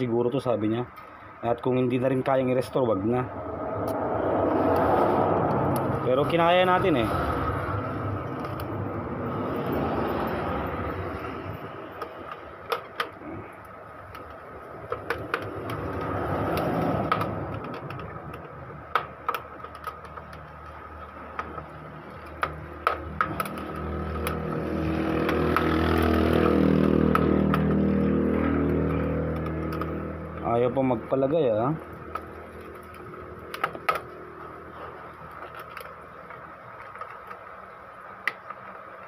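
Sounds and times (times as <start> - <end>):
vehicle engine passing: 2.8 - 12.6, 22.7 - 35.3
plastic printer parts clicking: 14.0 - 27.8, 31.9 - 34.2, 35.1 - 39.0.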